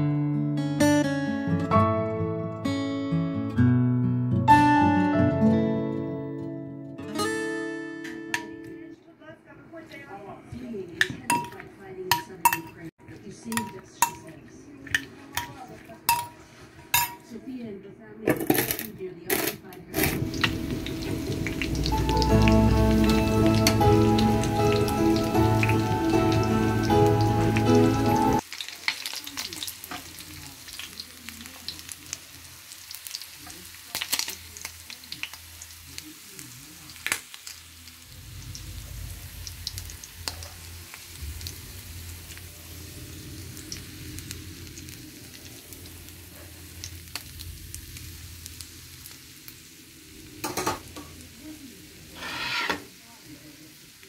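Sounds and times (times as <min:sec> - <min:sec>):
music: 0:00.0 - 0:09.1, 0:20.0 - 0:28.4
fish sizzling in oil: 0:20.0 - 0:54.0.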